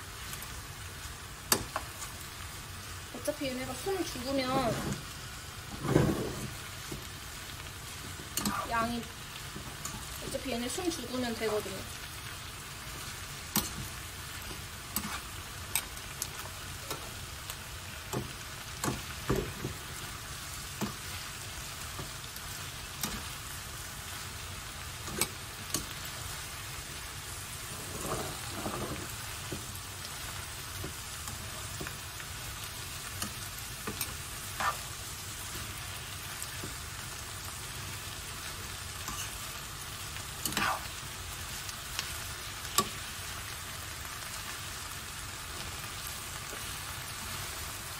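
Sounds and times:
vegetables sizzling in frying pan: 0:00.0 - 0:47.9.

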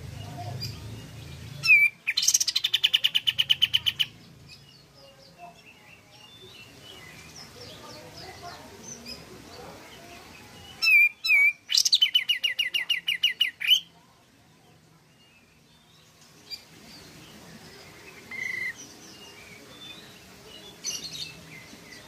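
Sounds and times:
bird singing sharp repeated notes: 0:00.0 - 0:04.9, 0:10.7 - 0:13.9, 0:17.9 - 0:22.0.

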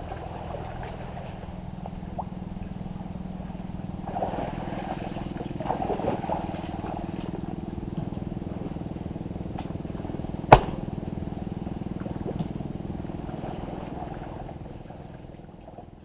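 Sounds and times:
small engine running: 0:00.0 - 0:15.9
sharp knock: 0:10.5 - 0:10.8.

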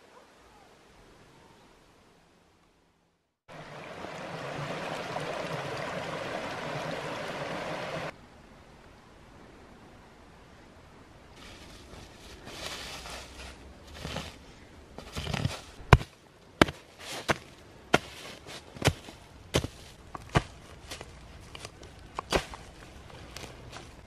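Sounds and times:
dry leaves rustling: 0:11.4 - 0:24.0.

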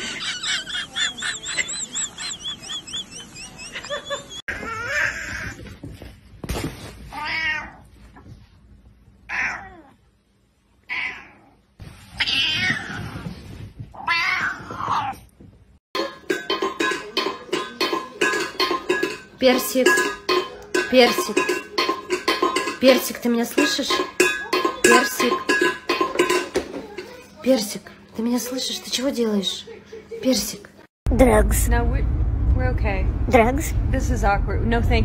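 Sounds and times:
high squeaky chirps: 0:00.8 - 0:04.5
cat yowling and growling: 0:09.3 - 0:10.0, 0:10.9 - 0:11.6
metal bowl clinking on floor: 0:16.0 - 0:27.3.

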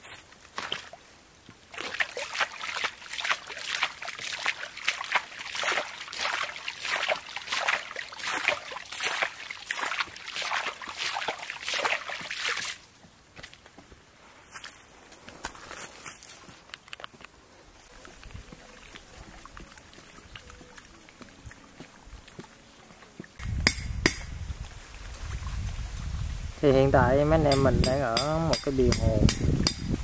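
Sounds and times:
hands splashing water: 0:01.7 - 0:13.6.

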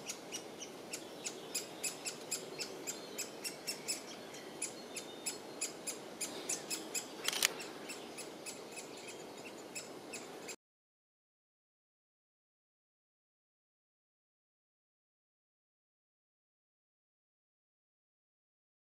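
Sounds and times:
woodpecker nestling begging calls: 0:00.0 - 0:10.6.

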